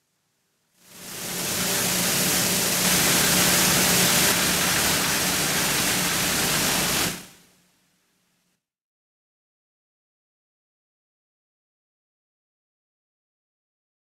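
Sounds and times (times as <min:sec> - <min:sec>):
foam flakes pouring down chute: 0:00.9 - 0:07.4.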